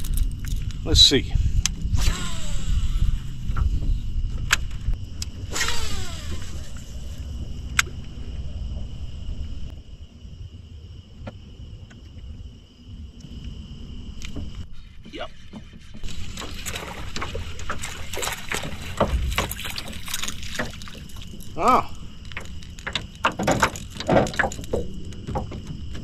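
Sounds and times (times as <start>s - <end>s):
wind rumbling on microphone: 0.0s - 26.0s
fishing reel spool whirring: 5.5s - 7.3s.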